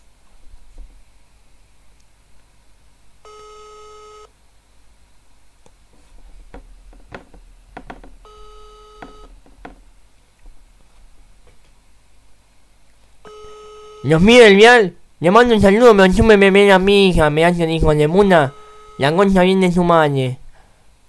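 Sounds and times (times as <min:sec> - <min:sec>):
phone ringback tone: 0:03.2 - 0:04.3, 0:07.8 - 0:09.9, 0:13.3 - 0:14.3, 0:18.2 - 0:19.3
short clicks and taps: 0:09.0 - 0:10.5.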